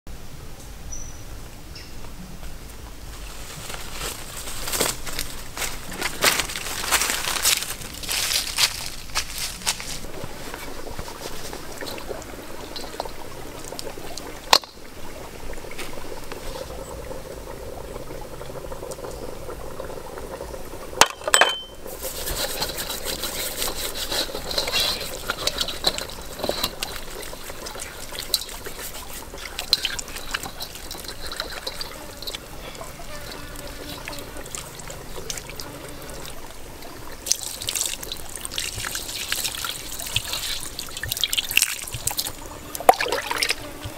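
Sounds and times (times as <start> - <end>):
water trickling: 3.2 - 43.9.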